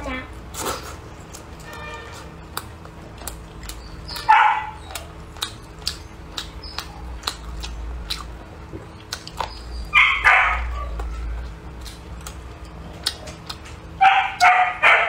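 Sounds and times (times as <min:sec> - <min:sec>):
dog barking: 0:04.2 - 0:04.8, 0:09.9 - 0:11.0, 0:14.0 - 0:15.0.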